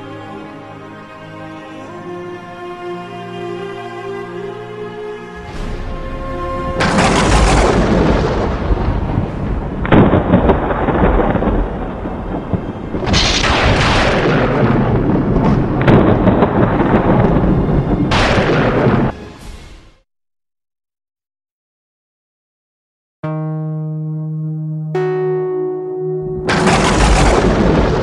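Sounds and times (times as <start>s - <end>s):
thunder-like crashes: 5.5s - 19.6s, 26.4s - 28.0s
rising swell: 23.7s - 28.0s.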